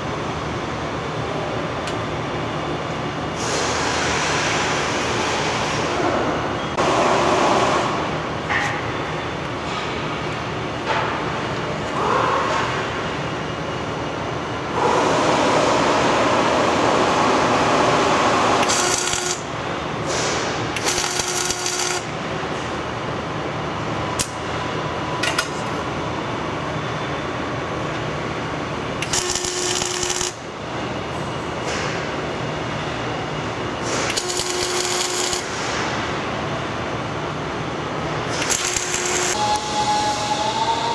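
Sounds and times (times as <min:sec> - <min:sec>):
electric arc welding: 0:18.6 - 0:19.5, 0:20.8 - 0:22.1, 0:29.0 - 0:30.4, 0:34.1 - 0:35.5, 0:38.4 - 0:39.4.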